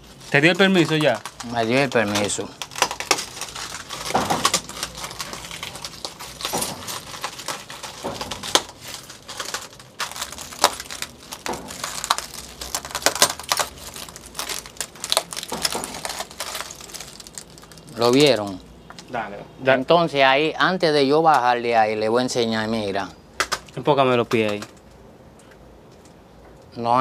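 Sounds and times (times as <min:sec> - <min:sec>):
broken glass crunching underfoot: 0:00.3 - 0:18.6.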